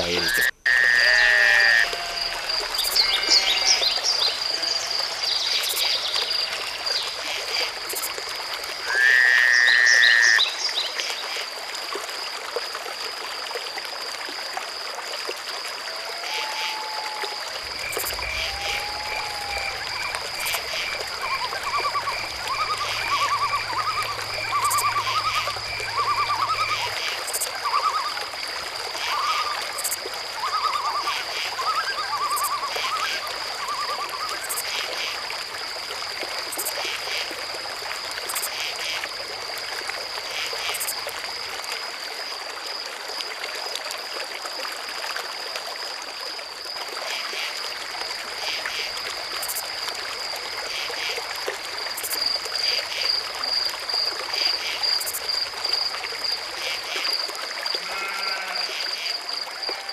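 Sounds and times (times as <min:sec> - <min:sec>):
frog calls: 0:00.0 - 0:11.5, 0:15.8 - 0:35.4, 0:48.3 - 0:59.9
insects trilling: 0:00.0 - 0:59.9
trickling water: 0:00.0 - 0:59.9.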